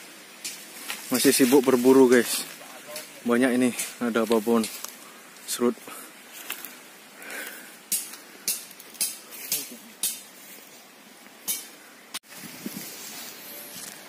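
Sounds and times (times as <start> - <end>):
metal tool striking soil: 7.9 - 10.3, 11.5 - 11.7.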